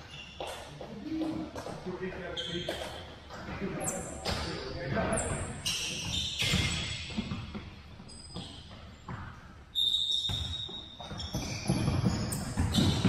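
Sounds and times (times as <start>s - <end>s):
sneakers squeaking on gym floor: 0.0s - 13.0s
ball kicked and bouncing: 6.0s - 9.6s, 10.2s - 13.0s.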